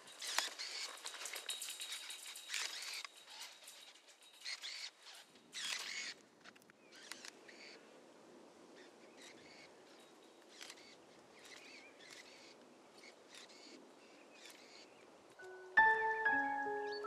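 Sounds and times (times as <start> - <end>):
faint bird chirps: 8.7 - 17.0.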